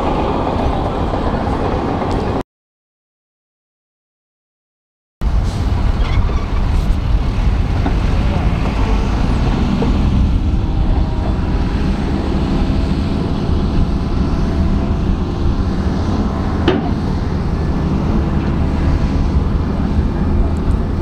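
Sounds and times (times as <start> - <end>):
diesel truck engine rumbling: 5.2 - 21.0.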